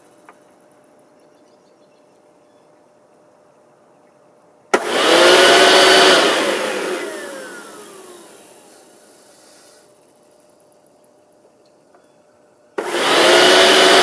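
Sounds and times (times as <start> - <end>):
electric blower whining: 4.7 - 9.8, 12.8 - 14.0.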